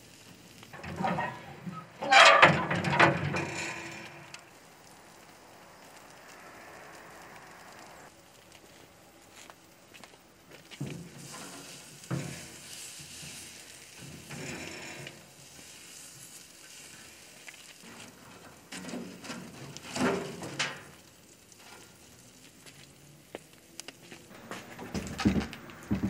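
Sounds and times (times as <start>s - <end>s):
meat sizzling on a grill: 0.0s - 2.0s, 3.4s - 24.3s
tongs scraping and knocking grate: 0.7s - 4.4s, 10.8s - 22.1s.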